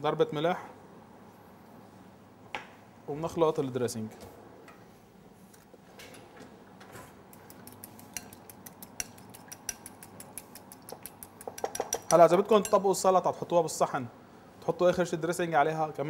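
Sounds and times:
utensil clinking against glass bowl: 7.3s - 13.0s.

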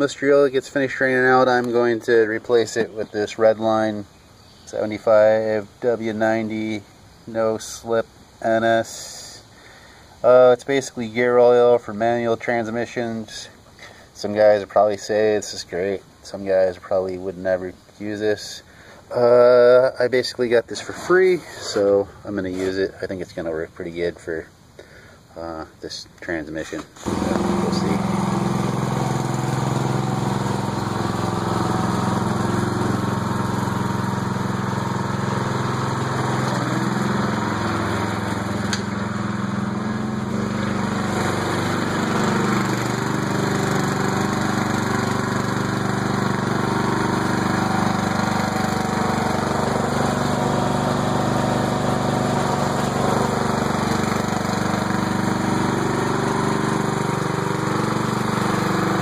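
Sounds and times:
lawn tractor engine running: 0.0s - 6.8s, 26.6s - 59.0s.

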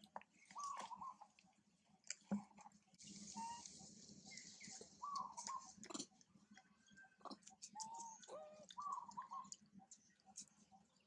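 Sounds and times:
baby monkey cooing: 7.2s - 9.6s.

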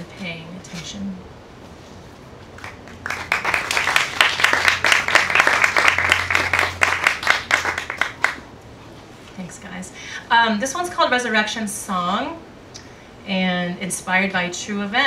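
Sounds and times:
audience applauding: 2.6s - 8.4s.

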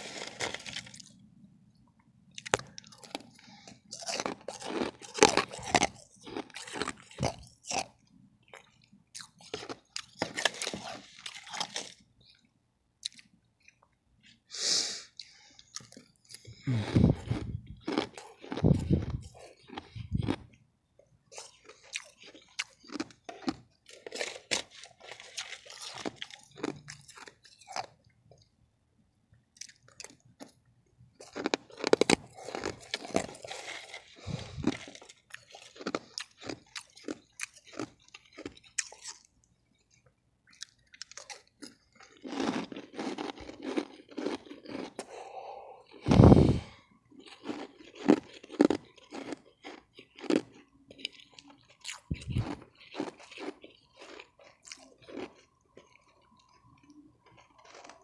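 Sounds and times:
ice crunching being chewed: 0.0s - 1.2s, 2.3s - 14.5s, 15.1s - 20.6s, 21.3s - 28.5s, 29.6s - 30.6s, 31.2s - 58.0s.

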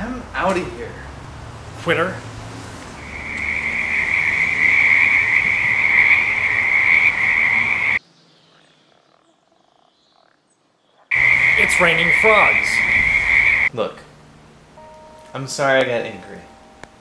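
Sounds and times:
frogs trilling: 3.0s - 13.7s.

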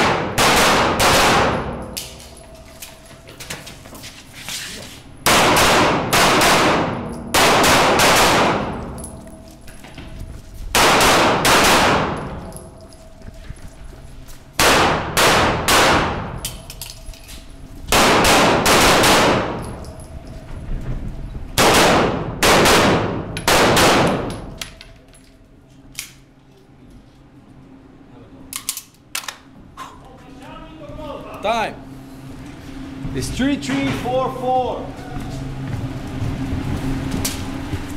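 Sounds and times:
pistol shots echoing indoors: 0.0s - 2.5s, 5.2s - 9.2s, 10.7s - 12.6s, 14.6s - 17.0s, 17.9s - 19.8s, 21.6s - 24.6s.

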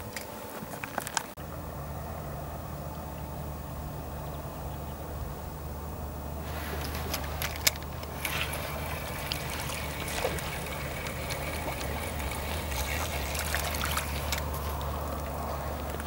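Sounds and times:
low hum: 0.0s - 16.0s
water trickling: 6.3s - 16.0s
rustling: 6.4s - 16.0s
fishing tackle clicks: 6.8s - 9.4s.

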